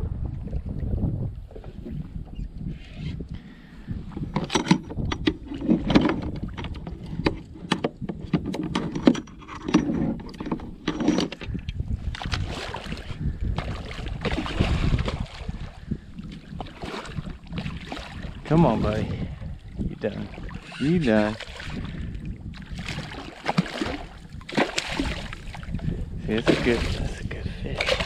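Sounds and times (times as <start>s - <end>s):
wind rumble on microphone: 0.0s - 28.0s
gear clicking against plastic hull: 4.1s - 12.4s.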